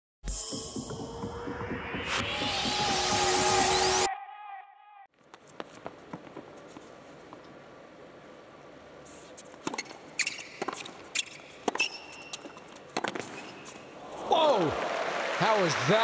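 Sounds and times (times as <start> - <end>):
shoes squeaking on hard court: 5.2 - 7.6, 9.0 - 14.0
tennis ball struck by racquets: 9.6 - 13.8.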